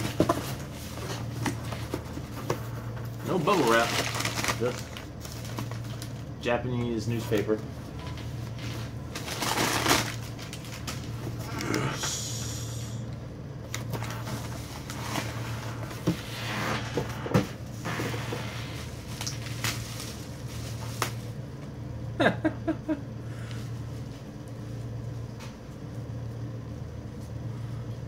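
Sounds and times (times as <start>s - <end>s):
paper and plastic wrap rustling: 0.0s - 11.5s, 17.9s - 21.4s
steady low hum: 0.0s - 28.0s.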